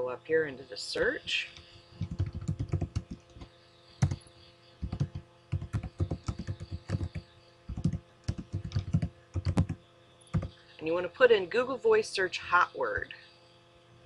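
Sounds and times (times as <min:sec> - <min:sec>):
typing on laptop keyboard: 0:01.6 - 0:04.2, 0:04.8 - 0:10.6.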